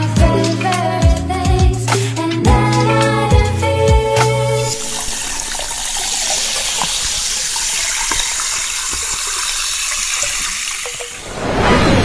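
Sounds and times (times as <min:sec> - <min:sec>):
rushing water: 0:04.6 - 0:12.0.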